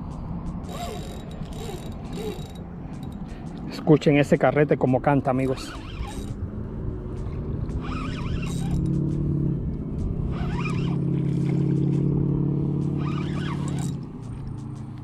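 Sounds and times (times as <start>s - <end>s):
fishing reel drag buzzing: 0.6s - 3.3s, 5.4s - 6.4s, 7.2s - 9.1s, 10.2s - 11.8s, 12.8s - 14.0s.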